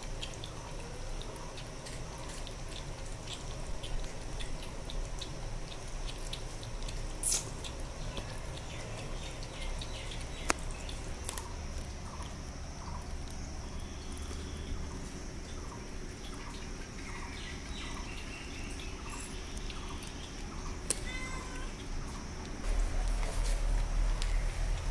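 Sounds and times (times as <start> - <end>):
cat chewing dry kibble: 0.0 - 24.9
kittens lapping at steel bowl: 0.0 - 24.9.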